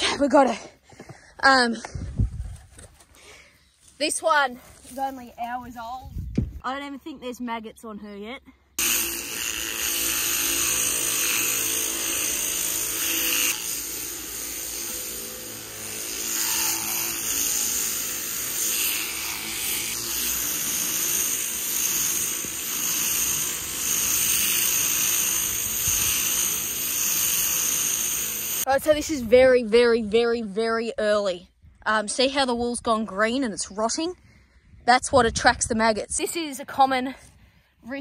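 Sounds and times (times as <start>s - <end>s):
electric shearing handpiece running: 8.8s - 28.8s.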